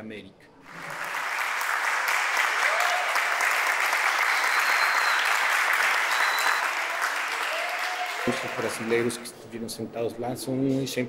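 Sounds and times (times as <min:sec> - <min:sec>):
people applauding: 0:00.6 - 0:09.4.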